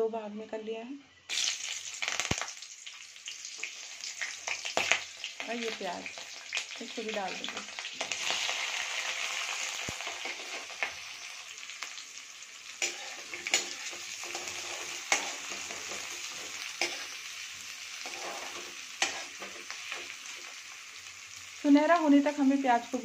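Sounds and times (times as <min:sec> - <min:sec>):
onions sizzling in hot oil: 0:01.3 - 0:23.0
metal spatula scraping a pan: 0:09.2 - 0:11.2, 0:12.7 - 0:20.5.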